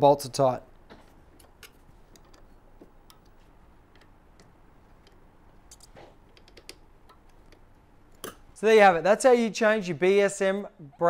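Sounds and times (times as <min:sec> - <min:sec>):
allen key clicking on bolts: 0:01.3 - 0:08.4.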